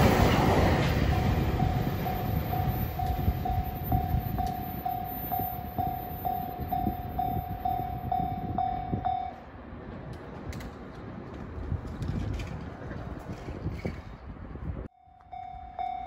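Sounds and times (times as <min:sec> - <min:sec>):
crossing bell dinging: 0:00.0 - 0:09.5, 0:14.9 - 0:16.0
train rumble: 0:00.0 - 0:16.0.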